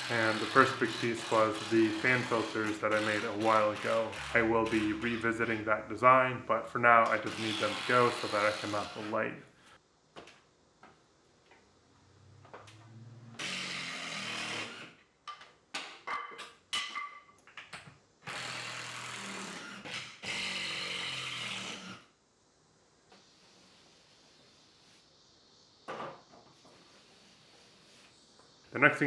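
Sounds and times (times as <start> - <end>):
cordless drill running: 0.0 - 5.2, 13.4 - 14.9, 18.3 - 22.0.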